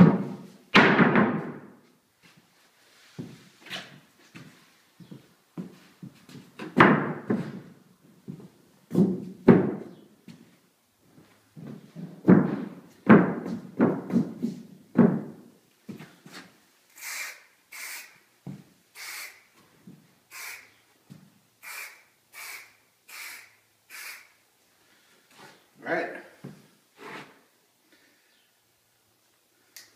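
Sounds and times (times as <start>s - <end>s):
wooden board thudding and scraping: 0.0s - 1.7s, 8.9s - 9.9s, 12.0s - 15.4s
footsteps on wooden floor: 3.1s - 16.5s, 18.4s - 18.7s
spray can hissing: 16.9s - 18.2s, 18.9s - 19.5s, 20.3s - 20.8s, 21.6s - 24.4s.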